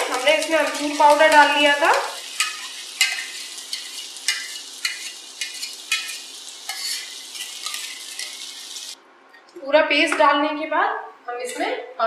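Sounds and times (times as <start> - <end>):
oil sizzling in a frying pan: 0.0 - 9.0
spoon scraping and tapping: 0.4 - 8.4.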